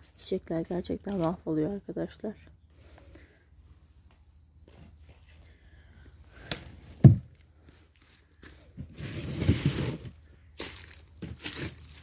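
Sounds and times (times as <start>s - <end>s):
rustling and scraping: 2.7s - 5.5s, 6.6s - 12.0s.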